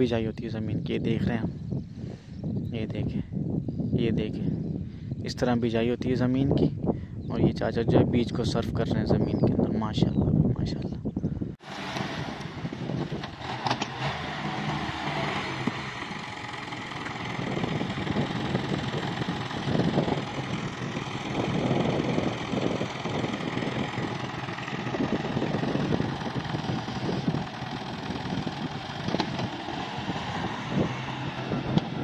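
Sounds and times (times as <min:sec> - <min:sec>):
tractor diesel engine idling: 0:12.5 - 0:32.0.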